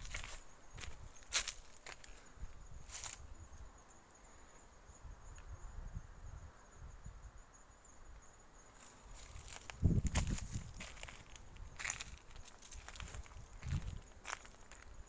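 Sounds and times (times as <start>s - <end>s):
footsteps on gravel: 0.0s - 2.1s, 9.1s - 15.0s
high-pitched insect trill: 0.0s - 15.0s.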